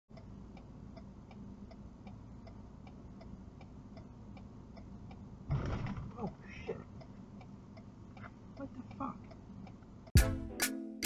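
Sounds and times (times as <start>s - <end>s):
turn signal clicking: 0.1s - 5.3s, 6.2s - 10.2s
loud thump: 5.5s - 6.1s.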